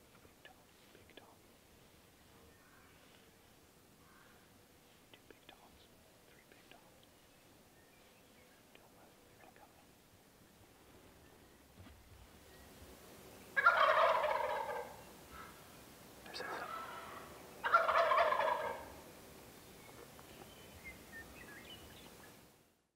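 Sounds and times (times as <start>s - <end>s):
turkeys gobbling: 13.6s - 15.5s, 16.5s - 19.0s.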